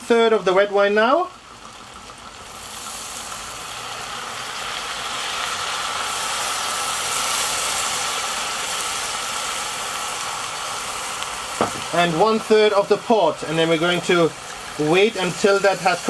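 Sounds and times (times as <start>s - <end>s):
wine sizzling in a hot pot: 0.0s - 16.0s.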